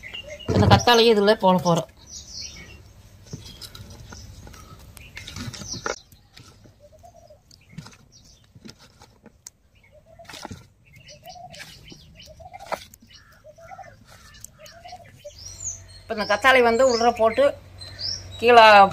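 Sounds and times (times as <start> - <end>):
birds chirping: 0.0 - 18.9
rustling in potting soil: 2.5 - 15.4.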